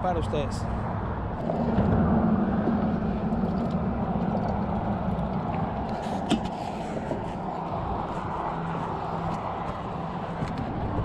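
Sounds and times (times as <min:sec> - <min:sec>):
traffic rumble on bridge: 0:00.0 - 0:11.0.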